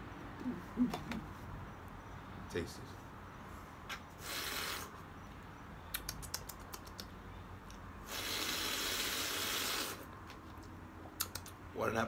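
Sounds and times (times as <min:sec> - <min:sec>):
hissing slurp: 0:04.2 - 0:05.0, 0:08.0 - 0:10.1
swallowing clicks: 0:05.9 - 0:07.8, 0:11.2 - 0:11.6.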